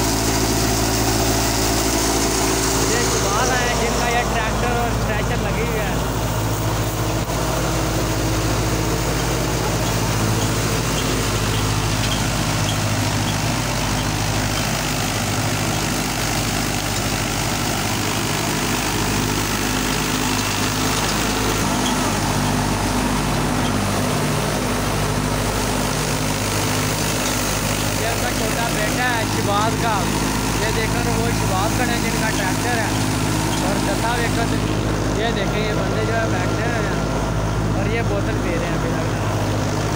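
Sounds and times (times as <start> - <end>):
diesel tractor engine running: 0.0 - 39.9
thresher rushing noise: 0.0 - 39.9.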